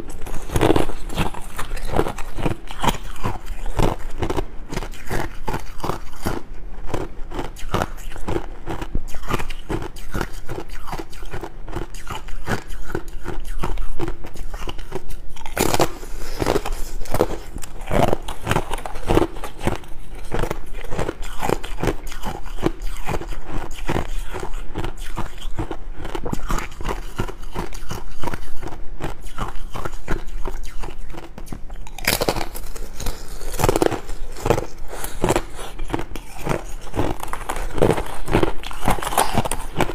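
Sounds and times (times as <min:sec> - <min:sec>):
crunchy ice chewing: 0:00.0 - 0:39.9.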